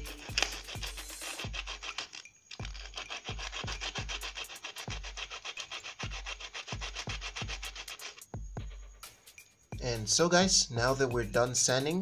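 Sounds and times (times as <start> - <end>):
solder scratching on sandpaper: 0.0 - 8.4.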